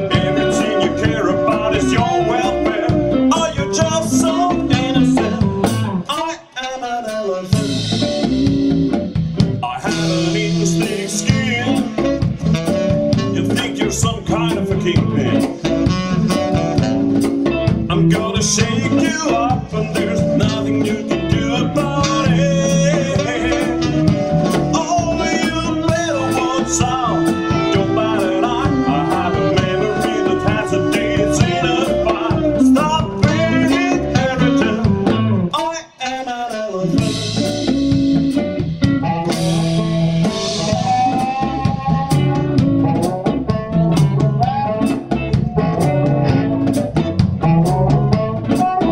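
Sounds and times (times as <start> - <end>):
man singing: 0.0 - 8.3, 9.6 - 16.9, 17.8 - 37.8, 39.3 - 42.6, 43.5 - 46.6
blues band playing: 0.0 - 48.9
harmonica: 20.0 - 34.9.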